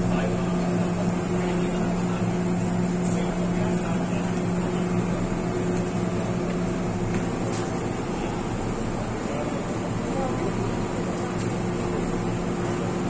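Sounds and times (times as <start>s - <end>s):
train motor hum: 0.0s - 13.0s
train wheels rumbling on track: 0.0s - 13.0s.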